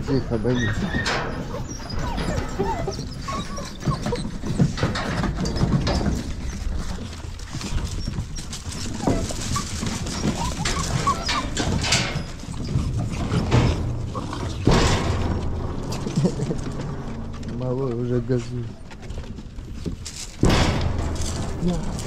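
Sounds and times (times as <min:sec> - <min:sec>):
puppy paws clattering on wood: 0:00.0 - 0:22.0
puppy squeaks: 0:00.1 - 0:07.0, 0:07.6 - 0:14.4.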